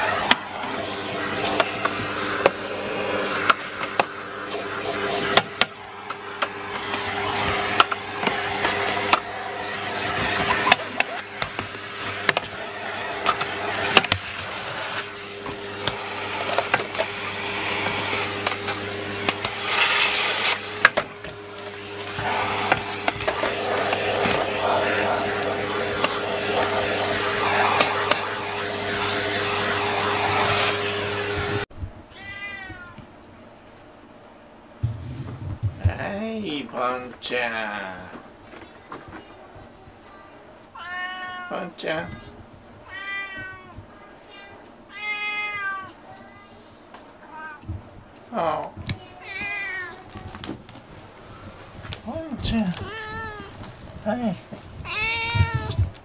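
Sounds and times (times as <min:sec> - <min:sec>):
vacuum cleaner running: 0:00.0 - 0:31.7, 0:50.0 - 0:56.0.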